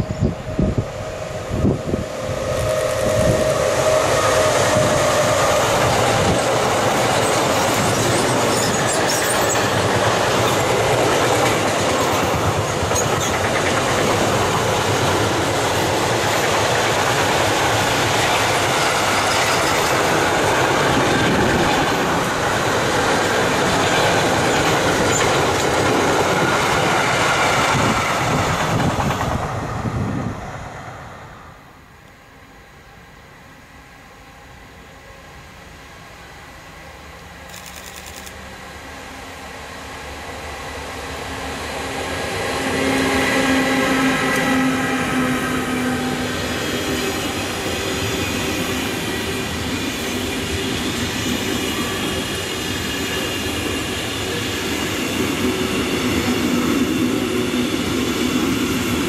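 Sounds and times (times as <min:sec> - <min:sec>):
electric locomotive whine: 0:00.0 - 0:59.0
train wagons rumbling: 0:01.6 - 0:30.6.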